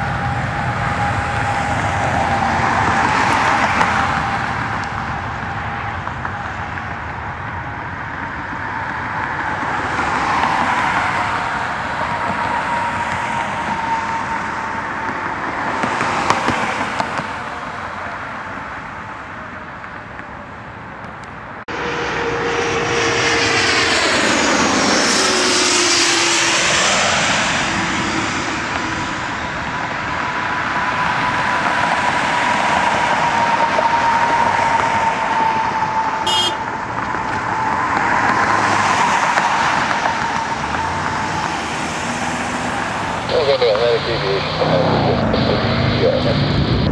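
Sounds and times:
jet passing close by: 0.0 - 19.4, 21.6 - 46.9
jet engines whine and roar: 0.0 - 46.9.

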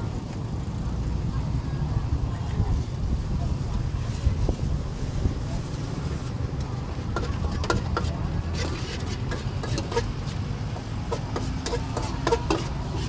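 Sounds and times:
voices: 0.0 - 13.0
metal spatula scraping a wok: 7.1 - 13.0.

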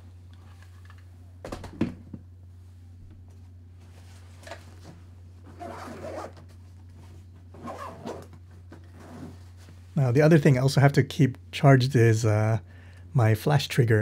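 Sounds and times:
rustling and handling of gear: 3.3 - 10.0.

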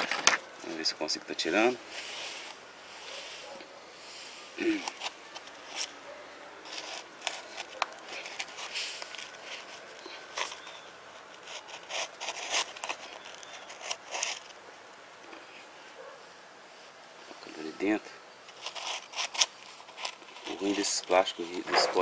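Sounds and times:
plastic pot crackling and scraping: 0.0 - 14.6, 18.4 - 22.0.

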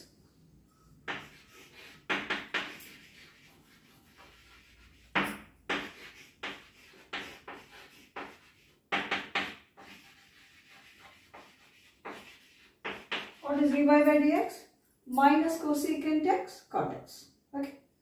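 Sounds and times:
chalk tapping on blackboard: 1.0 - 13.4
chalk scratching on blackboard: 1.0 - 13.8.

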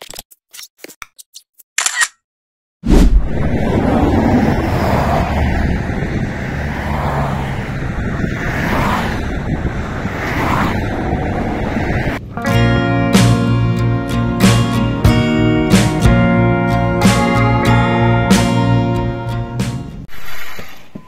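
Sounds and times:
road traffic rushing past: 2.9 - 20.5.

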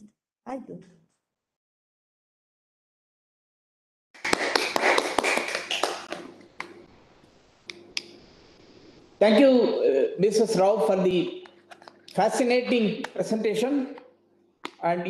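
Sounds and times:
audience applauding: 4.2 - 6.7.

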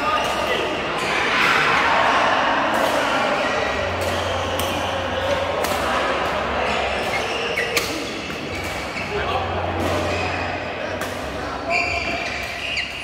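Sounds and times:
players chatting: 0.0 - 13.0
badminton racket hits: 3.9 - 9.0.

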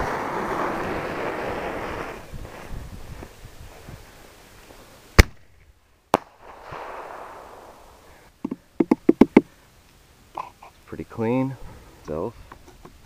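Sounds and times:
firework crackling pops: 0.0 - 3.5, 4.6 - 8.1
firework hiss: 0.0 - 5.4, 6.2 - 8.4.

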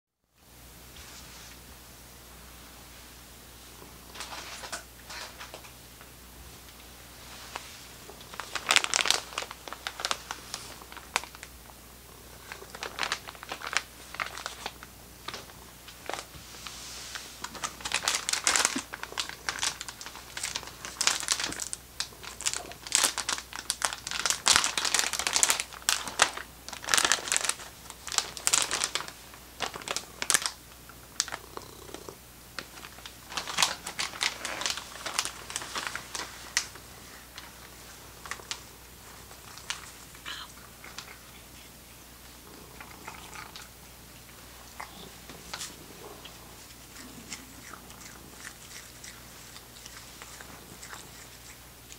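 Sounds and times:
plastic packet crinkling: 8.2 - 11.5, 12.4 - 16.3, 17.4 - 30.6, 32.6 - 40.2.

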